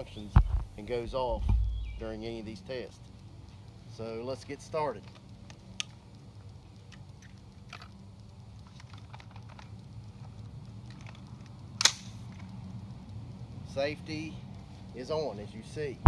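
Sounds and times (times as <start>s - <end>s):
rifle action clicks: 10.9s - 12.5s.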